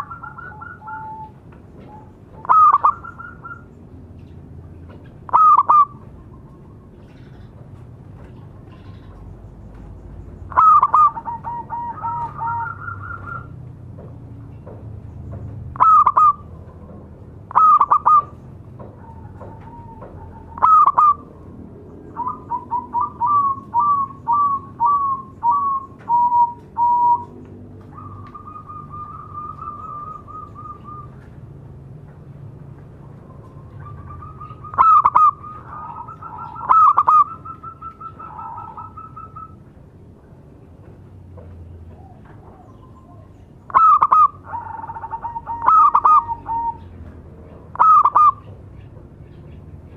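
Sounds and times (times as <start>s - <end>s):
dove cooing and trilling: 0.0s - 3.8s, 5.0s - 7.6s, 10.5s - 13.6s, 15.7s - 16.8s, 17.4s - 31.4s, 33.2s - 39.7s, 41.9s - 48.9s.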